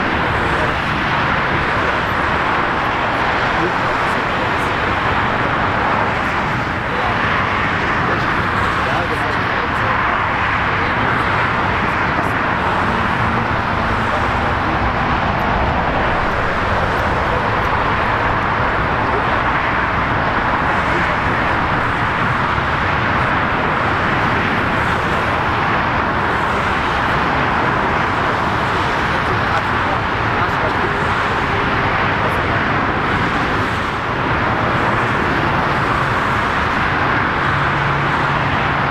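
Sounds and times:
jet engines idling: 0.0s - 38.9s.

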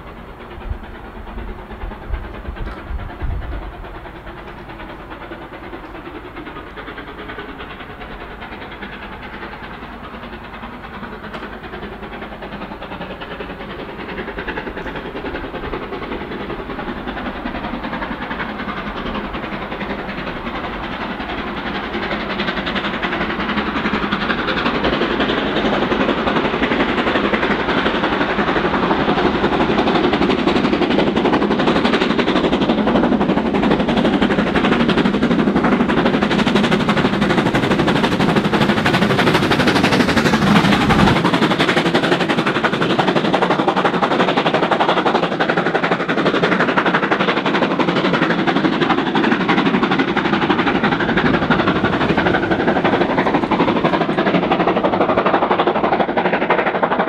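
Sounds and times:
steam locomotive chuffing: 0.0s - 57.0s
train coaches passing: 0.0s - 57.0s.

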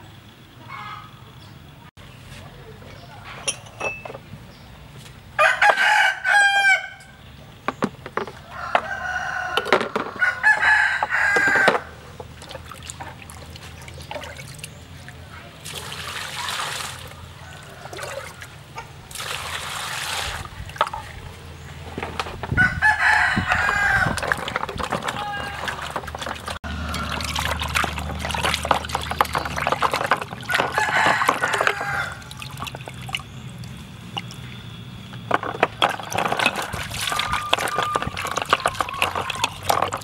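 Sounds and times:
rooster crowing: 5.4s - 7.2s, 8.4s - 12.0s, 17.2s - 18.6s, 22.6s - 24.3s, 26.6s - 27.7s, 30.5s - 32.4s, 36.4s - 39.6s
water poured from dipper: 24.2s - 33.3s, 35.9s - 40.0s.

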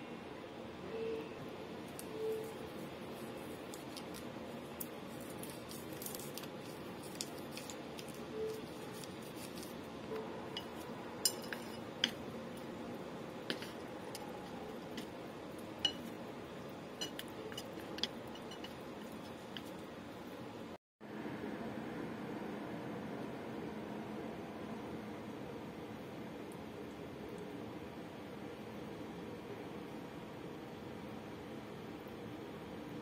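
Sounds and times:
chopsticks scraping ceramic plate: 10.5s - 12.7s, 13.4s - 16.2s, 17.0s - 19.8s.

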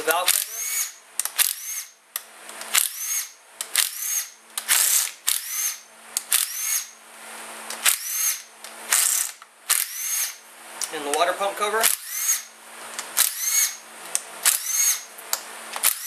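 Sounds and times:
cordless drill spinning out bolts: 0.3s - 2.0s, 2.6s - 7.0s, 7.7s - 10.4s, 11.8s - 13.8s, 14.4s - 15.1s, 15.8s - 16.0s.

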